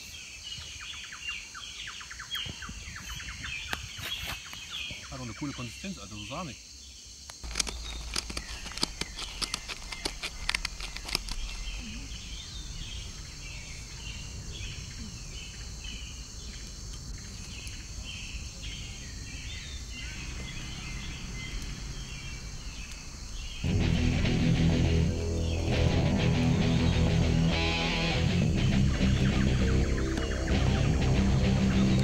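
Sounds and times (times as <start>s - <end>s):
dry twigs snapping: 7.3s - 11.9s
low wind rumble: 7.4s - 32.0s.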